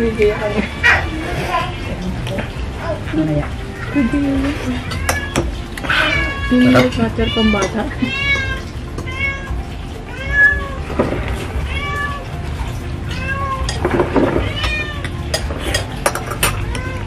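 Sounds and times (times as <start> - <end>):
cat meowing: 0.6 - 2.2, 3.6 - 10.9, 11.6 - 12.3, 13.1 - 15.3, 16.4 - 17.0.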